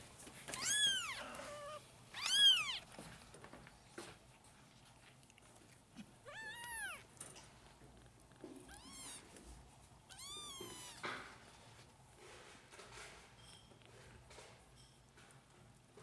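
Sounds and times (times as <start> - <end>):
kittens mewing: 0.6 - 2.9.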